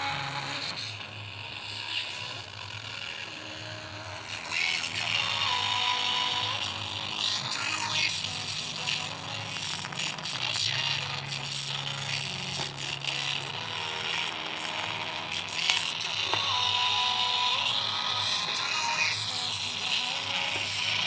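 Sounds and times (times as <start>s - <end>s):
song through small speaker: 0.0s - 21.0s
clicks and crackles from handling: 12.2s - 13.4s, 15.4s - 16.6s.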